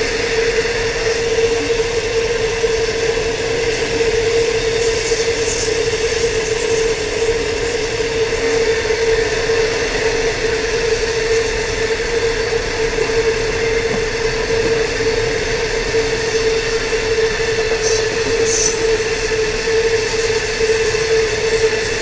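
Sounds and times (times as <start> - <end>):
freight train wagons rolling: 9.2 - 21.5.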